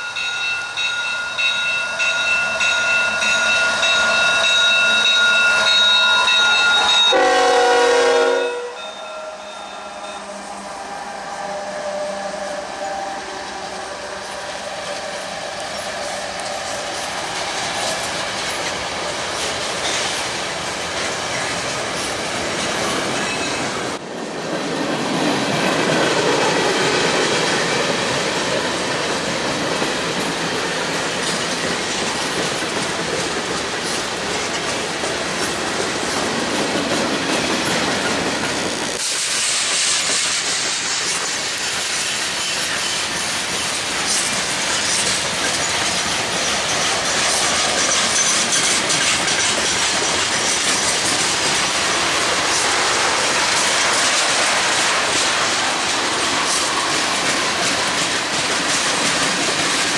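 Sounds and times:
train wheels clacking over rail joints: 14.4 - 59.9.

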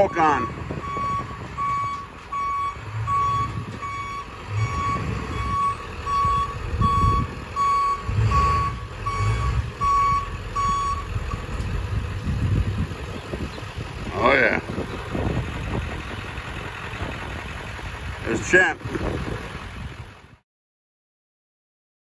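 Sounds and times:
truck backup alarm beeping: 0.0 - 11.8
truck engine rumble: 0.0 - 20.4.

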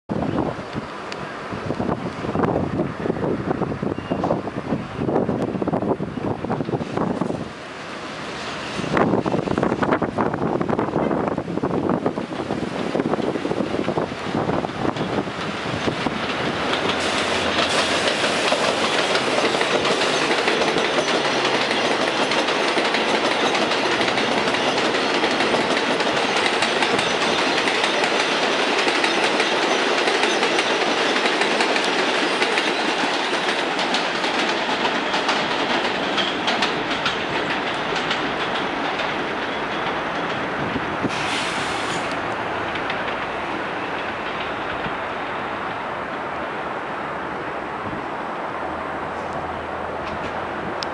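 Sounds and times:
train rumbling: 0.1 - 50.9
steel wheels clattering over rails: 12.0 - 45.1.

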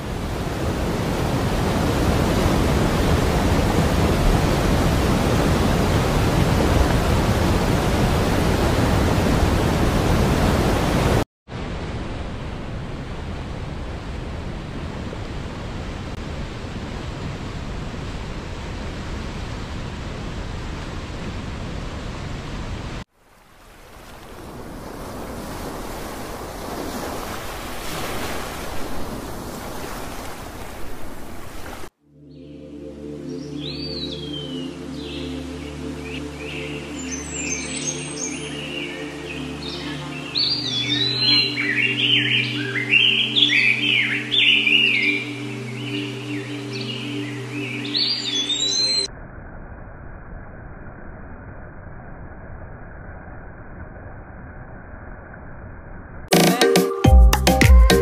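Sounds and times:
waterfall rushing: 0.0 - 11.2
waves washing ashore: 0.0 - 32.0.

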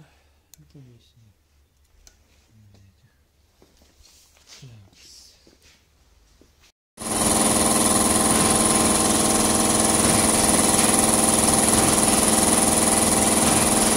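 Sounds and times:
air compressor clattering with whine: 7.0 - 13.9.

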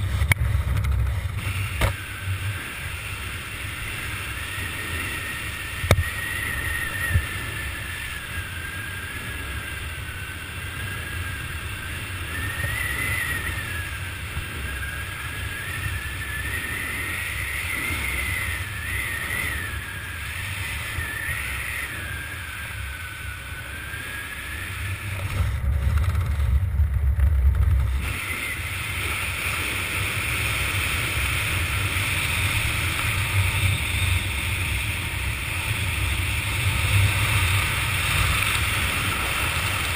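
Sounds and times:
wind rushing over microphone: 0.0 - 39.9
faint high whistle: 4.3 - 9.1, 12.2 - 25.0.

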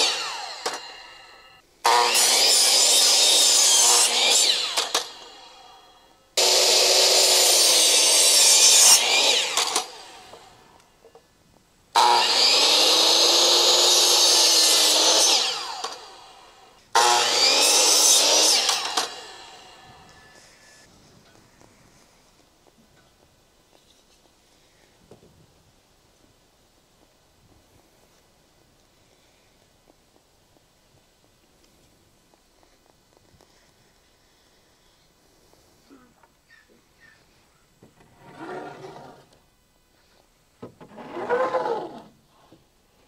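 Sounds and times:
electric miter saw cutting wood: 0.0 - 10.7, 12.0 - 20.8.

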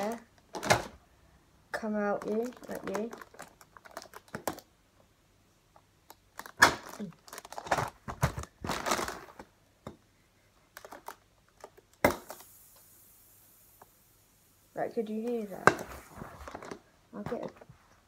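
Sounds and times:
plastic crinkling and rustling: 0.0 - 0.9, 1.8 - 4.7, 6.1 - 9.5, 10.7 - 12.5, 15.2 - 17.8
air hissing out: 12.2 - 14.8.

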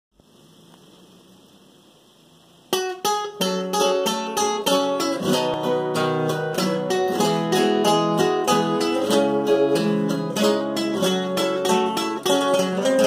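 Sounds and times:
faint hiss: 0.1 - 13.0
classical guitar fingerpicking: 2.7 - 13.0.

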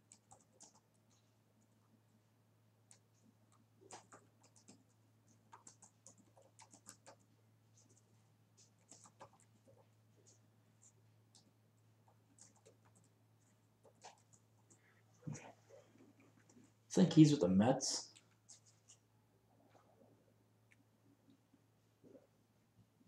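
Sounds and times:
keyboard typing clicks: 0.0 - 0.9, 5.5 - 7.2.

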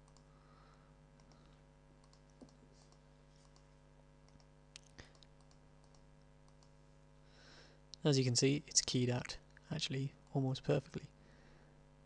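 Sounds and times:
faint computer clicks: 0.0 - 0.3, 1.2 - 6.8
low electrical hum: 0.0 - 12.0.

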